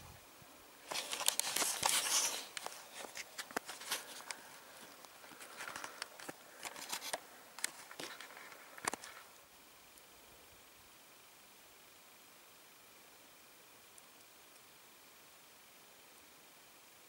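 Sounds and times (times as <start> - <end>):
rustling and crackling: 0.8 - 9.4.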